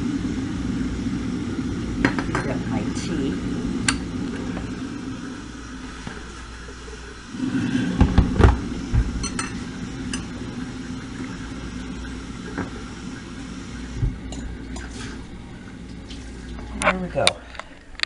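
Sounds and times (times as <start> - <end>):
steady low hum: 0.0 - 18.0
knocks on kitchen counter: 8.0 - 9.1.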